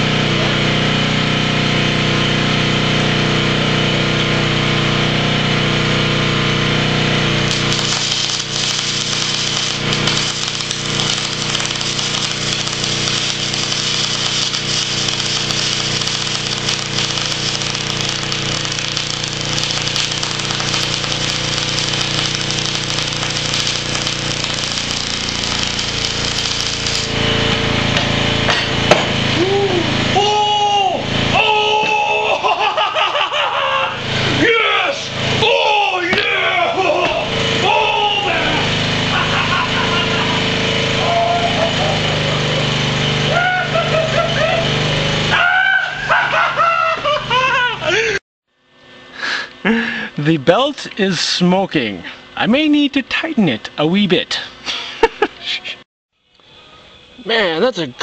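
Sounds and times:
arc welder crackling and sizzling: 0:00.0 - 0:33.2, 0:34.0 - 0:46.2
generator engine running: 0:00.0 - 0:58.0.

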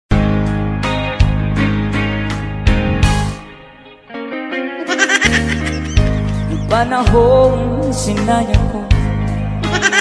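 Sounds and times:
ballad instruments: 0:00.2 - 0:10.0
person singing with vibrato: 0:06.5 - 0:10.0.

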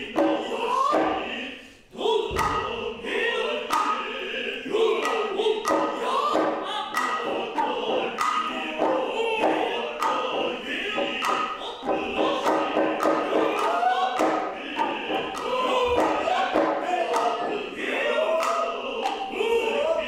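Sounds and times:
chorus chanting in unison: 0:00.0 - 0:20.0
sharp drum strokes: 0:02.2 - 0:19.6.

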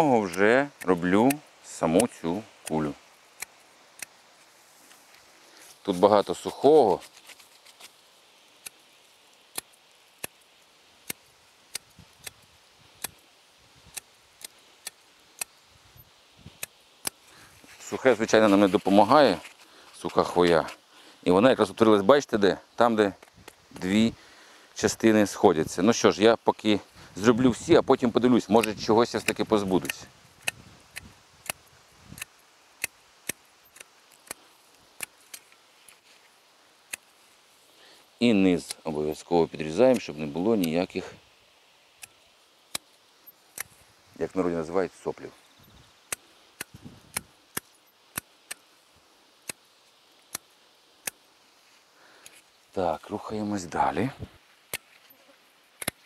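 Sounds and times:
pruning shears snipping: 0:00.0 - 0:04.2, 0:28.4 - 0:36.0, 0:36.9 - 0:37.1, 0:38.6 - 0:40.9, 0:42.0 - 0:43.8, 0:46.1 - 0:48.7, 0:49.4 - 0:49.6, 0:50.3 - 0:51.2, 0:55.8 - 0:56.0.

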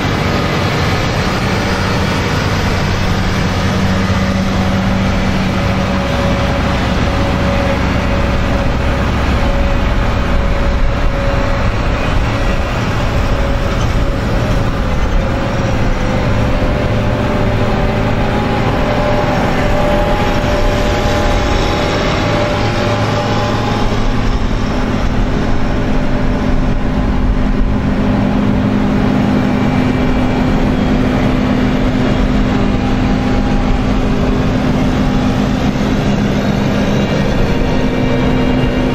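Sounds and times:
combine harvesters driving past: 0:00.0 - 0:38.9
diesel engines running: 0:00.0 - 0:38.9.

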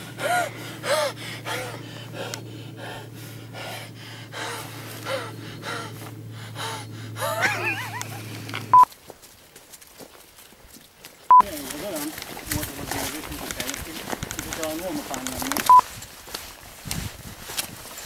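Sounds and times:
man gasping and wheezing: 0:00.0 - 0:07.5
steady low hum: 0:00.0 - 0:09.0.

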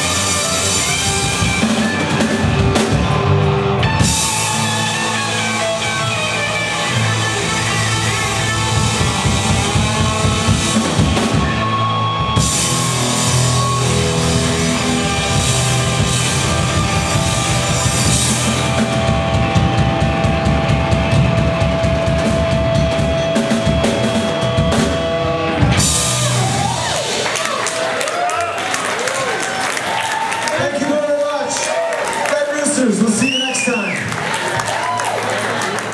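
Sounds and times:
drum kit: 0:00.0 - 0:28.6
bass guitar: 0:00.0 - 0:30.0
electric guitars: 0:00.0 - 0:30.9.

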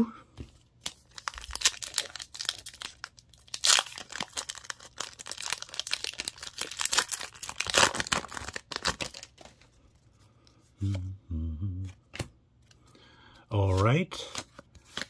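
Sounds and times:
foil wrapper tearing and crinkling: 0:00.8 - 0:09.5.

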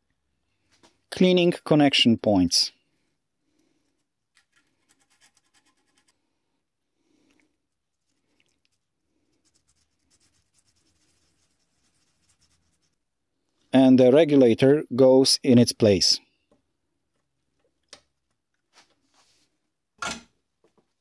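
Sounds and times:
faint scratching: 0:03.8 - 0:06.3, 0:07.8 - 0:13.0.

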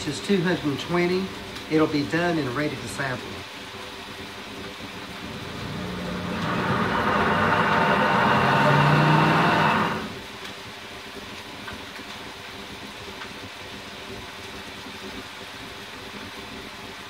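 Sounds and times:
blender motor running: 0:05.1 - 0:10.2.

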